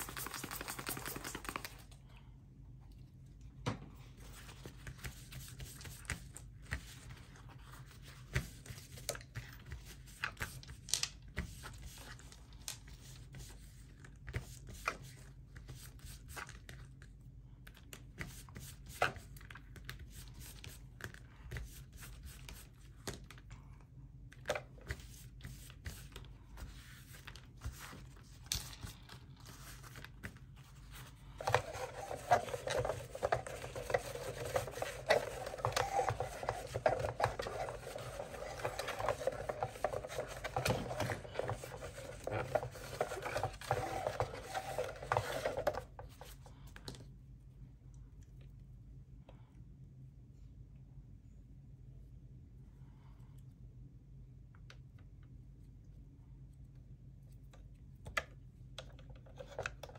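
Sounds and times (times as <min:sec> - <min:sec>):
paper towel scrubbing plastic: 0:00.0 - 0:01.9, 0:24.5 - 0:46.5.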